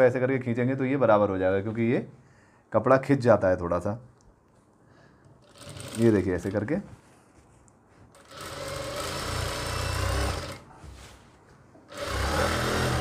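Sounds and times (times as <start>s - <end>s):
sewing machine stitching: 5.4s - 6.5s, 8.2s - 10.7s, 11.9s - 13.0s.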